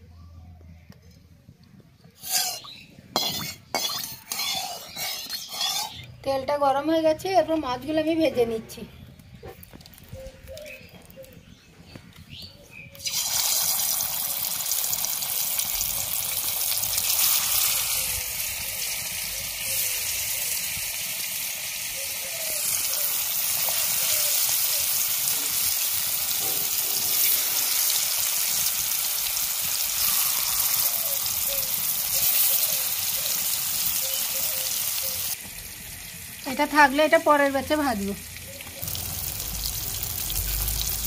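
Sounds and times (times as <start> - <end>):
fish sizzling in hot oil: 2.2 - 6.0, 13.0 - 41.0.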